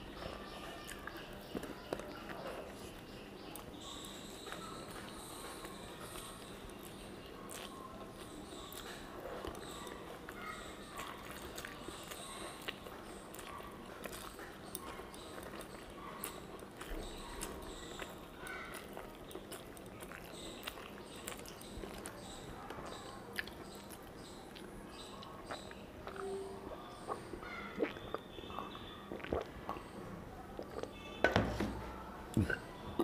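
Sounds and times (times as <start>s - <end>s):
person chewing: 0.1s - 29.9s
mouth clicks and lip smacks: 27.1s - 29.9s.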